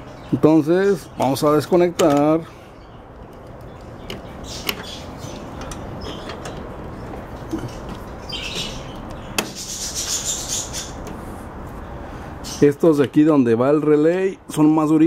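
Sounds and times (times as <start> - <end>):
wires rubbing and rustling: 3.1 - 11.9.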